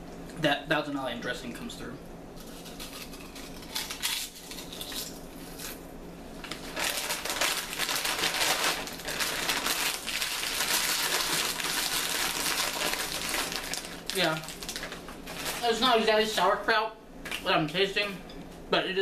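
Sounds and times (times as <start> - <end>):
potato chips crunching: 2.4 - 5.8, 6.5 - 15.8.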